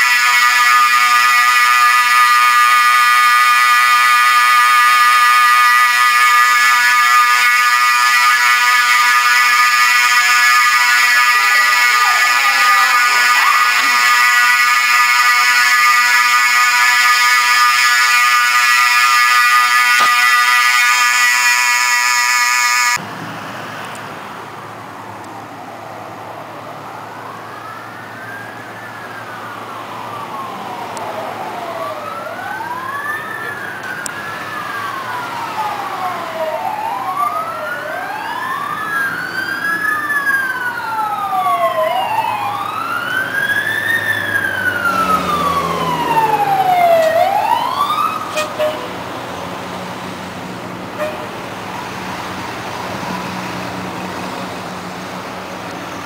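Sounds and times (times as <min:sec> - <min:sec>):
fire alarm tone: 0:00.0 - 0:23.0, 0:31.5 - 0:48.9
fire truck sirens wailing: 0:00.0 - 0:56.0.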